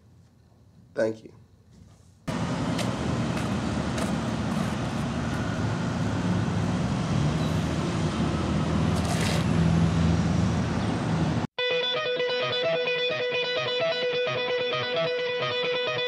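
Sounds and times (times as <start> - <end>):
road traffic rumble: 2.3 - 11.5.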